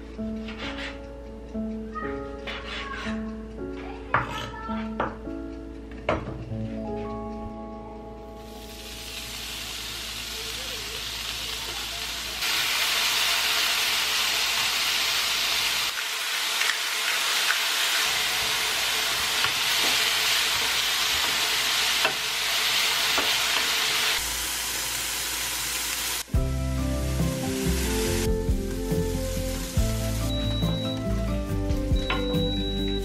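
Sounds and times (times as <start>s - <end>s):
bacon sizzling in a pan: 8.4s - 31.3s.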